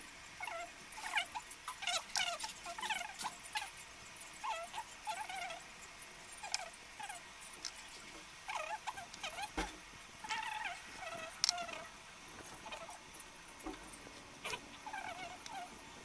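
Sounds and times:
high animal squeaks: 0.4 - 3.8, 4.4 - 5.7, 6.4 - 7.3, 8.5 - 9.6, 10.2 - 11.9, 12.6 - 13.0, 14.4 - 15.8.

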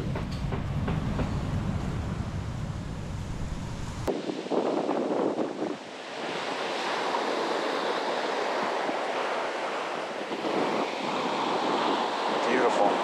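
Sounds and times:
sea surf washing onto beach: 4.1 - 13.0.

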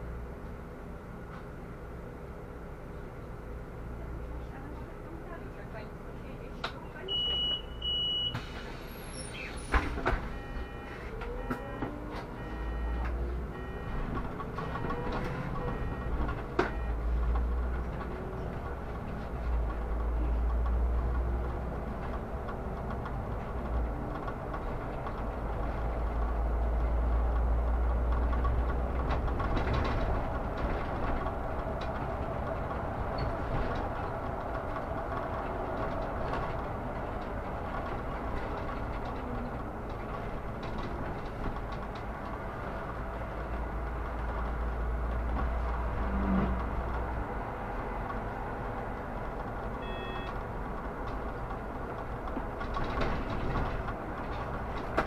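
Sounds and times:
bus engine and road rumble: 0.0 - 55.0
short beep: 7.1 - 8.5, 10.3 - 17.0, 49.8 - 50.4.

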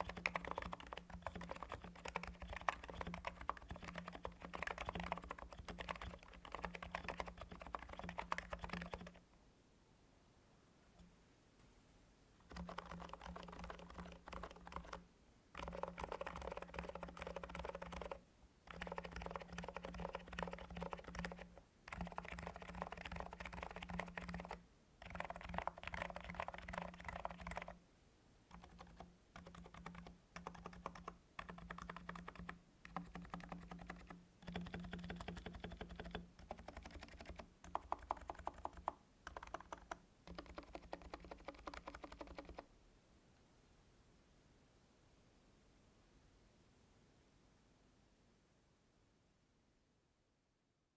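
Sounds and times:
keyboard typing: 0.0 - 9.2, 12.4 - 27.8, 28.5 - 42.7.

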